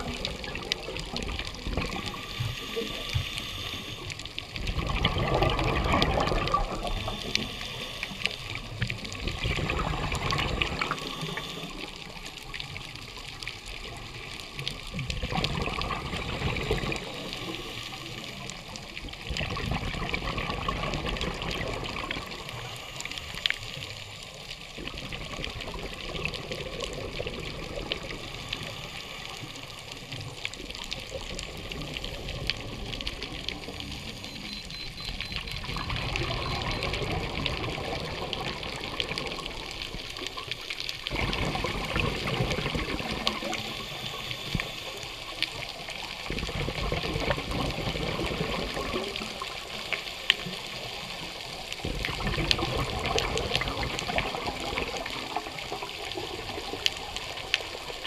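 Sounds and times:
faint clicks: 0.0s - 19.4s
underwater rushing water: 0.0s - 58.0s.

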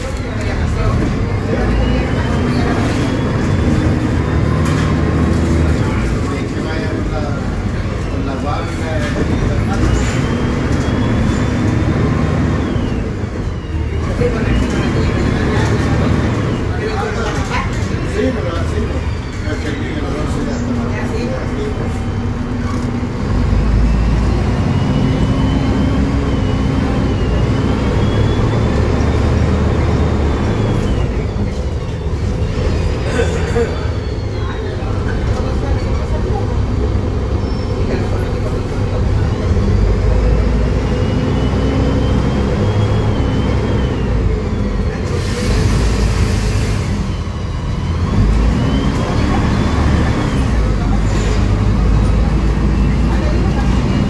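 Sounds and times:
diesel bus engine: 0.0s - 54.0s.

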